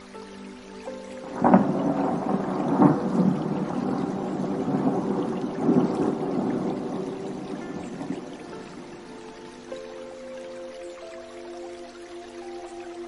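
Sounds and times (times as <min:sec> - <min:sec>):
thunder clap and rumble: 0:01.2 - 0:08.8.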